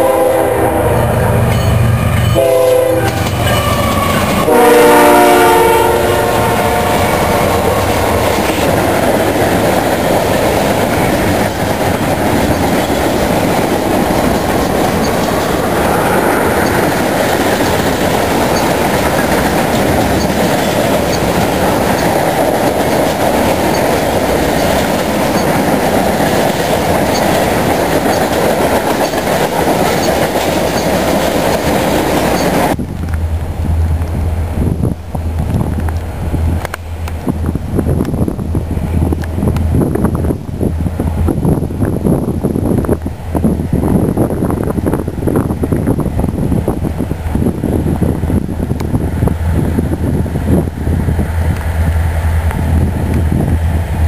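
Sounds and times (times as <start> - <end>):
locomotive horn blasts: 0.0 - 8.4
freight train rolling by: 0.0 - 54.0
train wheel clatter: 1.4 - 54.0.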